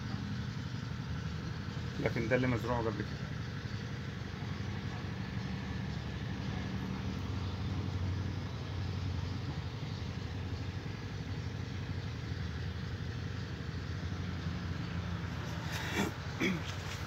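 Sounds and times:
engine running steadily: 0:00.0 - 0:17.0.

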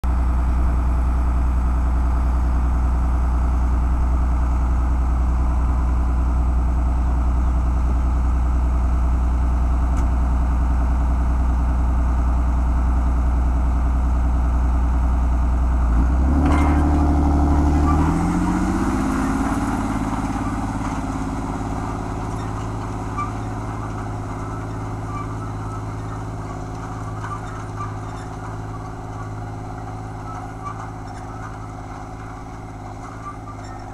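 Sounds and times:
tractor diesel engine idling: 0:00.0 - 0:33.9
tractor engine revving: 0:15.9 - 0:33.9
clunk: 0:16.3 - 0:33.9.

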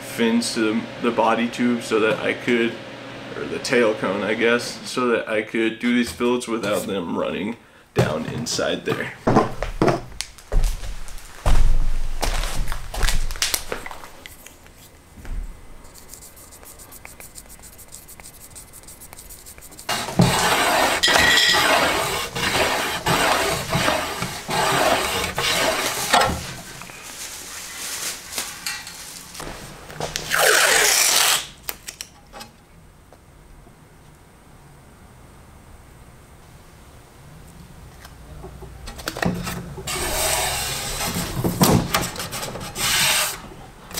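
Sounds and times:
tape pulled off roll: 0:29.4 - 0:31.6.

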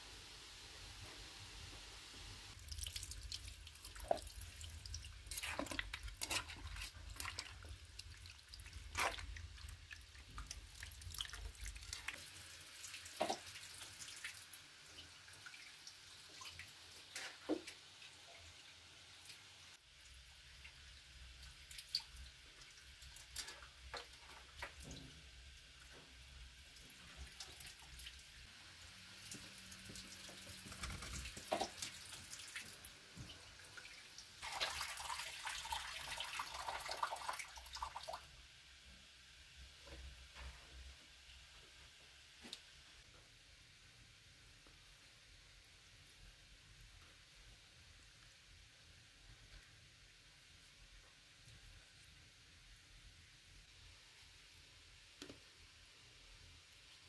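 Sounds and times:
drip-like taps and clicks: 0:55.2 - 0:55.4.

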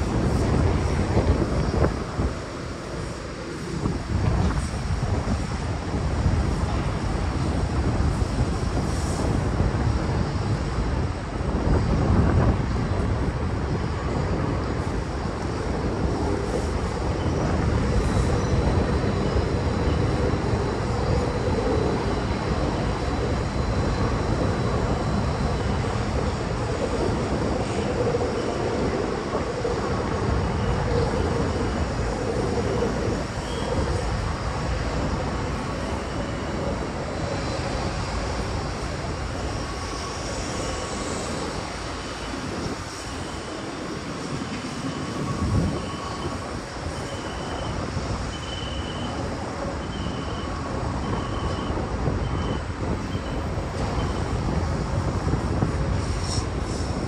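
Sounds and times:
low rumble of urban traffic: 0:00.0 - 0:57.0
faint high beep: 0:47.0 - 0:49.2, 0:49.8 - 0:53.4.

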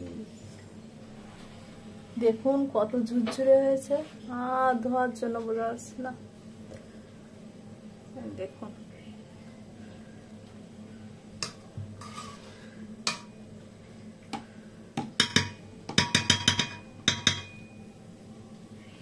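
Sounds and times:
metal spoon clinking on pot: 0:15.2 - 0:17.7.

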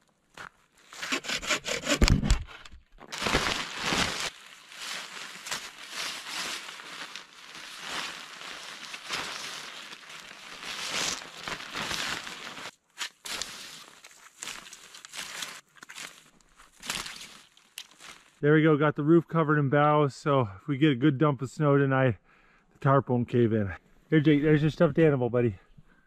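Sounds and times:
tarp and snow crunching: 0:03.0 - 0:18.4.

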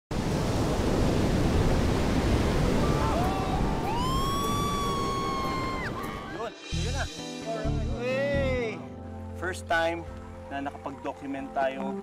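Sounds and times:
ocean surf: 0:00.1 - 0:07.6.

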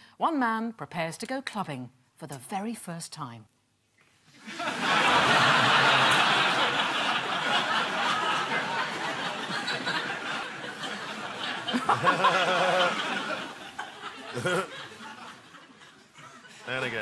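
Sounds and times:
audience laughing: 0:04.4 - 0:17.0.

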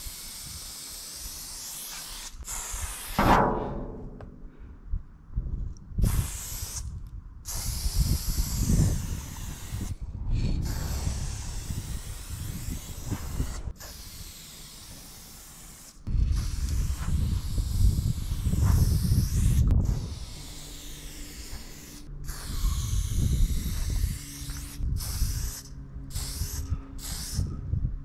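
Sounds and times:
spray can hissing: 0:00.0 - 0:03.3, 0:06.0 - 0:06.9, 0:07.5 - 0:10.0, 0:10.6 - 0:27.5
low rumble: 0:03.2 - 0:06.0.

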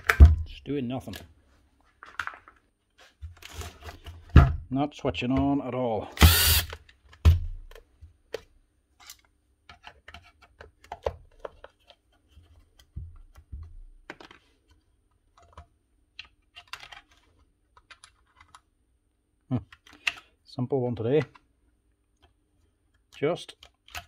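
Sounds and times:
plastic and metal parts clicking: 0:12.7 - 0:18.7, 0:19.6 - 0:20.3, 0:21.0 - 0:21.5, 0:22.1 - 0:24.0.

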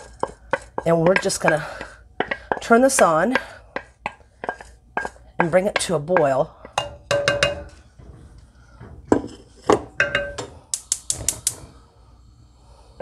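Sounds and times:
wooden spatula knocking on a pot: 0:00.0 - 0:08.1, 0:08.8 - 0:10.5.

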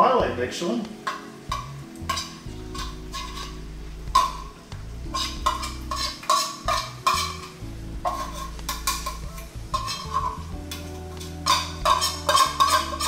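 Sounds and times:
frying pan sizzling: 0:00.0 - 0:13.0
metal utensil scraping tin can: 0:01.1 - 0:03.6, 0:05.1 - 0:13.0.

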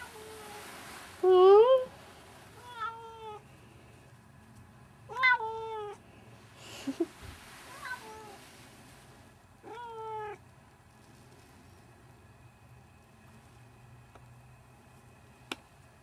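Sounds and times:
cat meowing: 0:02.6 - 0:03.4, 0:05.1 - 0:06.0, 0:09.6 - 0:10.4.

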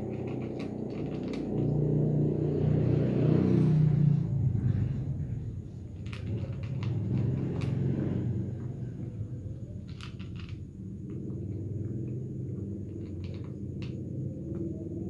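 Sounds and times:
cat crunching food: 0:00.0 - 0:02.0, 0:06.0 - 0:08.2, 0:09.8 - 0:14.6
steady low hum: 0:00.0 - 0:15.0.

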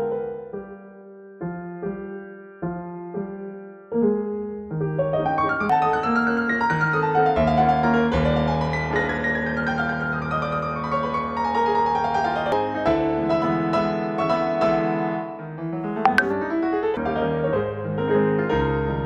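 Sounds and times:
background piano music: 0:00.0 - 0:11.1, 0:16.1 - 0:17.9.

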